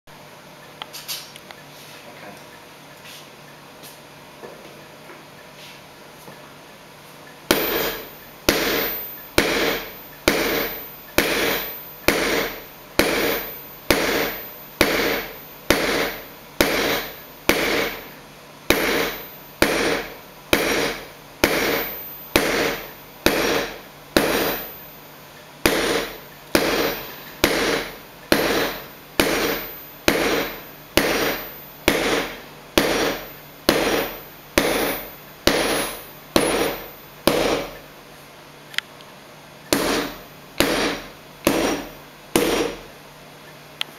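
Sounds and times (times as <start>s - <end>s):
hammer striking hot metal on anvil: 7.5s - 37.8s, 39.7s - 42.9s.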